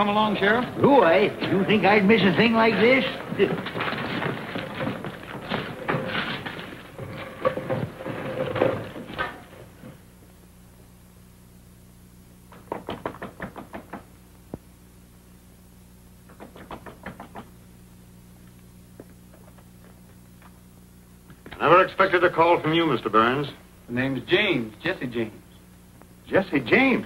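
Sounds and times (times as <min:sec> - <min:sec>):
busy mixed noise: 0:00.0 - 0:09.2.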